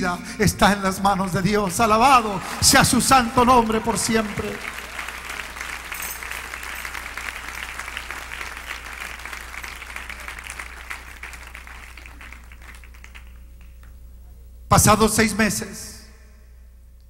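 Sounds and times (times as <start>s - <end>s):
congregation applauding: 0.9s - 14.0s.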